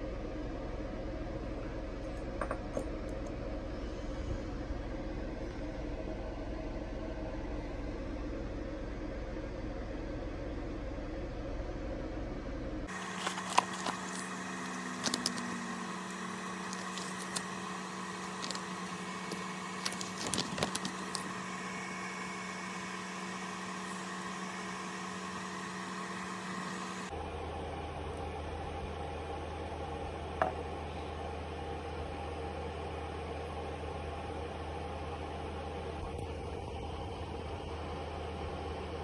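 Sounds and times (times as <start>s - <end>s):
steady electrical hum: 0.0s - 39.0s
paper leaflet crinkling: 12.9s - 21.7s.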